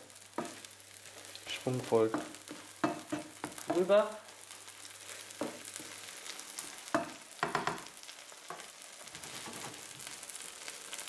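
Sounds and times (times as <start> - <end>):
omelette sizzling in a pan: 0.0 - 11.0
spatula scraping a pan: 8.5 - 10.1.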